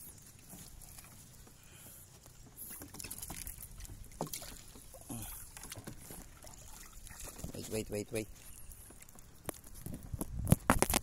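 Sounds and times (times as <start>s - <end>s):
water lapping and splashing: 0.0s - 11.0s
wind rumble on microphone: 9.4s - 11.0s.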